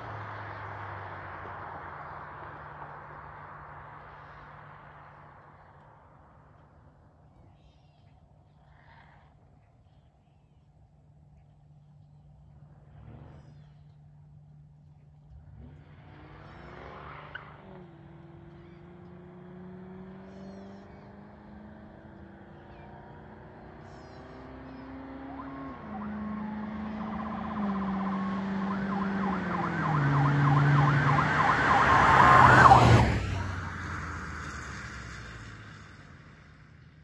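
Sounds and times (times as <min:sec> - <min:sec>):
car engine accelerating past: 0:12.6 - 0:37.0.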